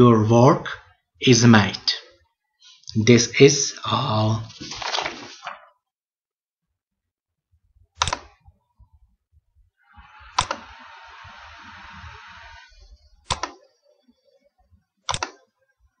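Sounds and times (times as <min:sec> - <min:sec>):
computer mouse clicks: 0:08.0 - 0:08.4, 0:10.0 - 0:11.4, 0:12.3 - 0:13.7, 0:15.0 - 0:15.5
soft steady hiss: 0:09.8 - 0:15.0.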